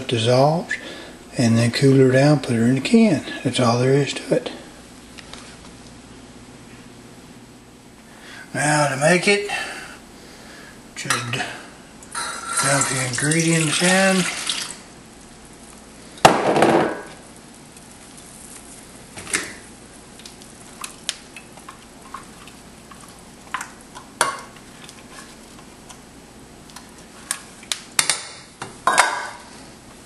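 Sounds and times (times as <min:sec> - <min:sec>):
liquid pouring into pot: 0:12.1 - 0:14.9.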